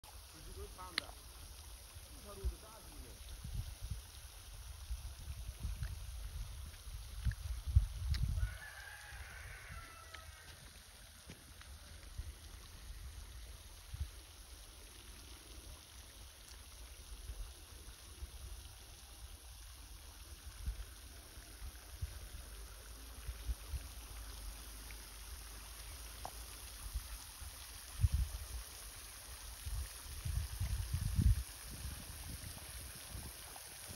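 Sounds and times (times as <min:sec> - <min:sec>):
faint steady hiss: 0:00.0 - 0:33.9
wind buffeting microphone: 0:05.0 - 0:08.6, 0:29.7 - 0:33.9.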